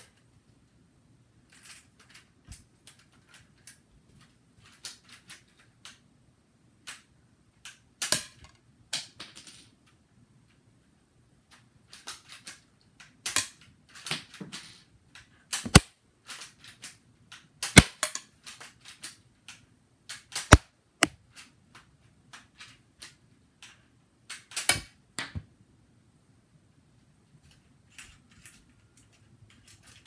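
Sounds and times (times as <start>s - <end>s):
sharp plastic clicks and snaps: 15.1s - 25.4s
loud plastic cracks: 15.6s - 15.9s, 17.6s - 18.2s.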